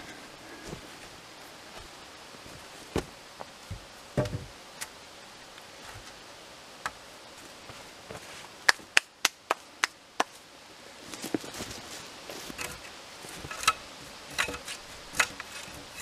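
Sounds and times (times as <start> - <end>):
wood thud: 3.7 - 4.5.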